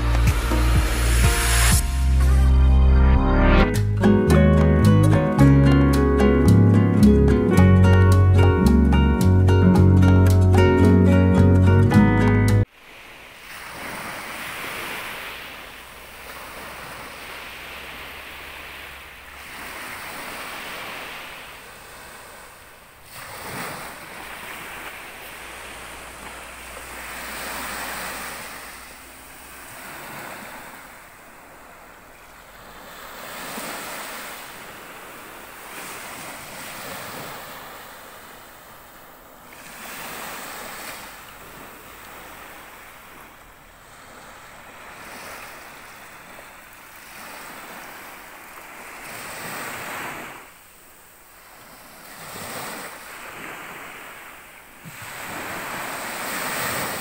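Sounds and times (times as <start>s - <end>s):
small waves breaking on beach: 12.6s - 57.0s.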